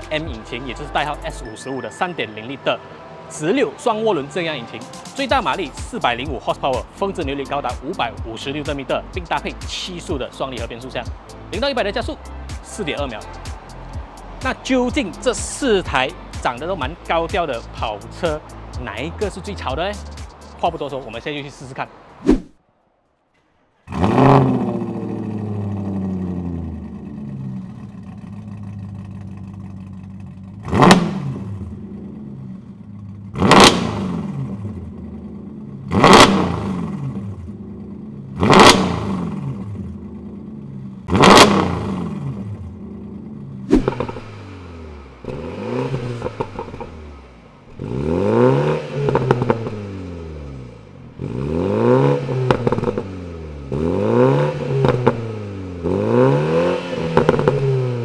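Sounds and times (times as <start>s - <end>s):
four-cylinder engine revving: 23.8s - 58.0s
veight engine revving: 23.9s - 58.0s.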